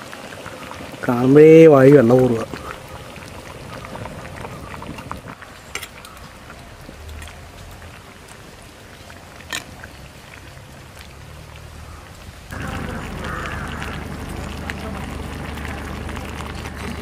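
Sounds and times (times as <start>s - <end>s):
curry simmering in a pot: 0.0s - 17.0s
loud steady hiss: 12.3s - 17.0s.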